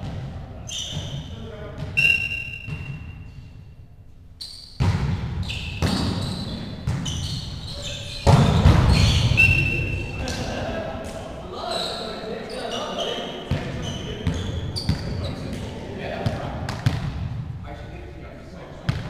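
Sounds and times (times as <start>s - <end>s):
players calling: 0.7s - 3.0s, 5.4s - 16.8s
volleyball hit with sharp smacks: 4.8s - 7.1s, 8.2s - 9.6s, 16.3s - 17.5s.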